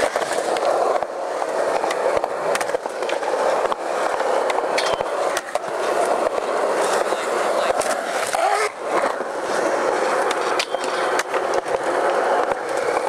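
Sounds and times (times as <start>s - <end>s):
skateboard clacks: 0.0s - 13.0s
skateboard wheels rolling on concrete: 0.0s - 13.0s.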